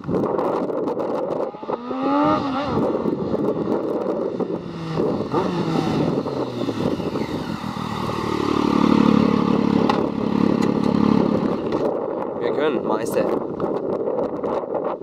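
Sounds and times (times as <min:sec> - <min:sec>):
motorcycle accelerating: 0:00.0 - 0:12.4.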